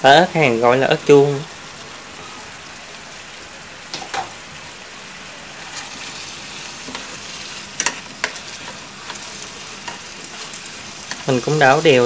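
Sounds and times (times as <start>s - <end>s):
food sizzling in hot oil: 0.2s - 12.0s
chopsticks clicking against pan: 7.8s - 9.2s.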